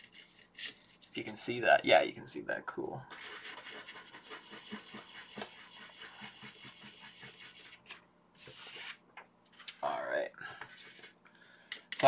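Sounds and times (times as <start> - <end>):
pastel scratching on paper: 3.1 - 9.0, 10.7 - 11.2.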